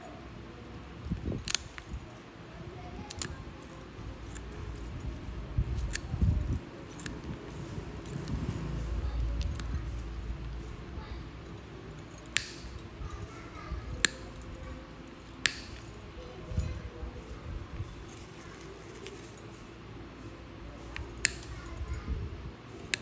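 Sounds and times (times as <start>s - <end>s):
low handling rumble: 0.2s - 19.0s
nail nippers snapping: 1.1s - 2.0s, 3.0s - 3.4s, 4.1s - 8.4s, 9.4s - 10.1s, 12.0s - 12.9s, 13.9s - 16.0s, 20.9s - 21.7s.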